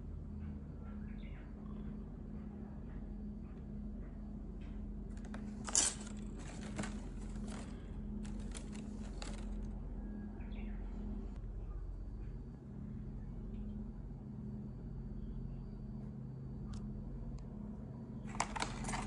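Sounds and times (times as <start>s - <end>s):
steady low hum: 0.0s - 19.0s
rustling handling noise: 5.1s - 9.8s, 18.3s - 19.0s.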